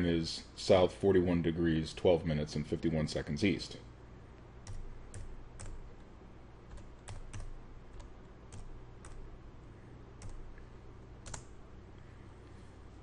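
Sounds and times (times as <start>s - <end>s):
keyboard typing: 4.6s - 6.1s, 6.7s - 9.3s, 10.2s - 11.6s.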